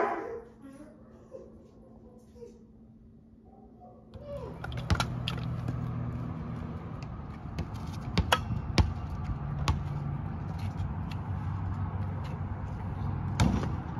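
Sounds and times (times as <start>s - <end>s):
low outdoor hum: 0.0s - 13.9s
kick scooter clicks and knocks: 4.4s - 5.8s.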